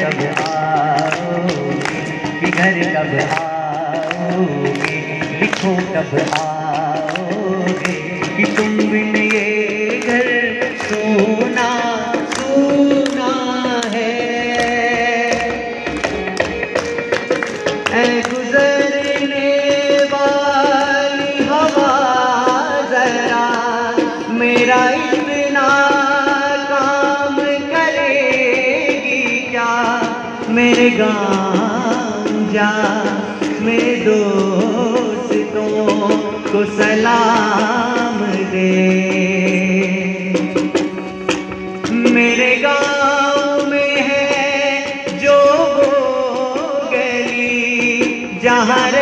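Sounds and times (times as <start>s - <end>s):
instrumental accompaniment: 0.0s - 49.0s
man singing into microphone: 0.0s - 49.0s.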